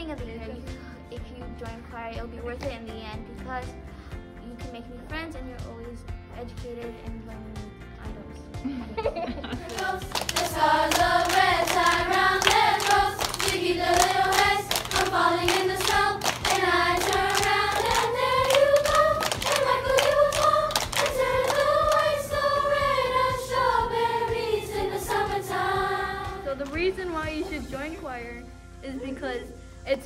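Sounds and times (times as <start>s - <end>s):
hand claps: 9.6s - 23.6s
choir singing: 9.6s - 26.6s.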